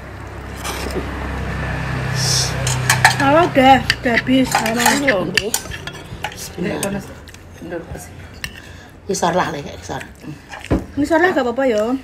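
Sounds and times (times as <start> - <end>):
spoons clinking against plates: 2.6 - 7.7.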